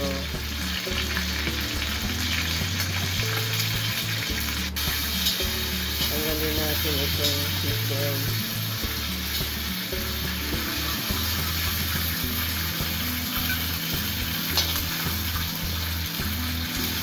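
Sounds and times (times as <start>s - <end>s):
background music with bass line: 0.0s - 17.0s
chicken sizzling in hot oil: 0.0s - 17.0s.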